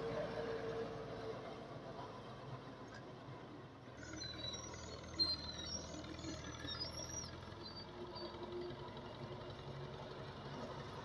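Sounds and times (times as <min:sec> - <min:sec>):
tractor diesel engine running: 0:04.1 - 0:11.0.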